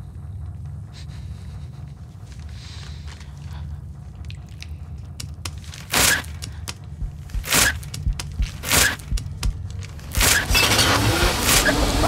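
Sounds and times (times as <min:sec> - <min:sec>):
low steady hum: 0:00.0 - 0:12.0
rough ripping noises: 0:04.3 - 0:12.0.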